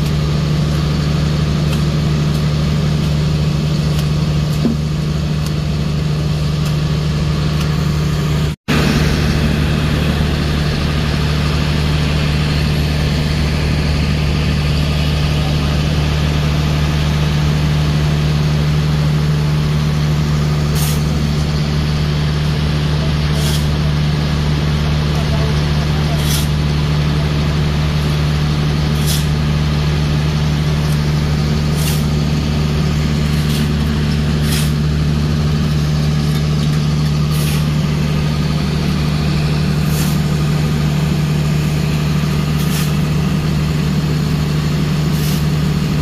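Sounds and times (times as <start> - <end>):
heavy diesel engine idling: 0.0 - 46.0.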